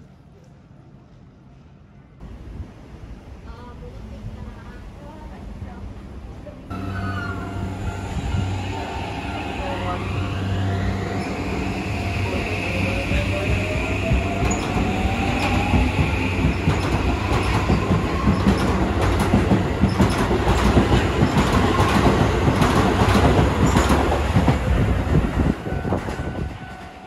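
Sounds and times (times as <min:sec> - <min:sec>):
electric train whine: 0:06.7 - 0:27.0
train wheels clattering: 0:13.1 - 0:27.0.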